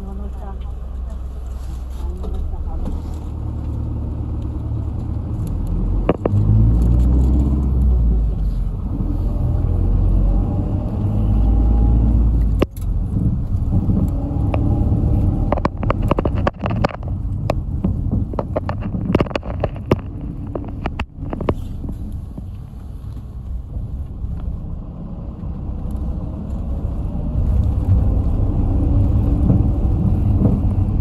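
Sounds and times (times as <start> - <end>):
bus engine droning: 0.0 - 31.0
bus body rattling: 12.5 - 24.8, 26.1 - 31.0.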